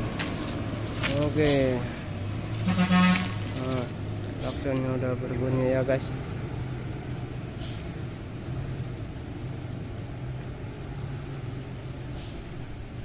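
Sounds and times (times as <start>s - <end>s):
diesel truck engine droning: 0.0s - 13.0s
short hiss: 7.6s - 8.0s, 12.1s - 12.5s.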